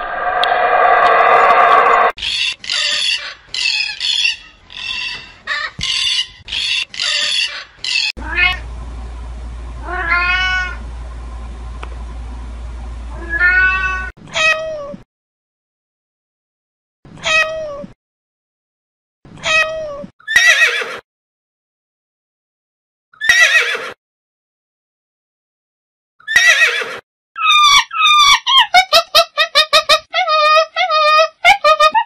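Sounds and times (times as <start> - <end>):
low steady hum: 8.2 - 13.3
cats meowing: 9.8 - 10.8, 13.2 - 15.0.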